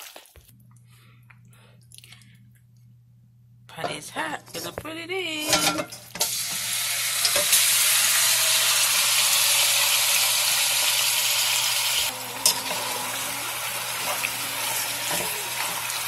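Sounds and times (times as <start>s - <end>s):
meat sizzling in hot oil: 6.2s - 16.0s.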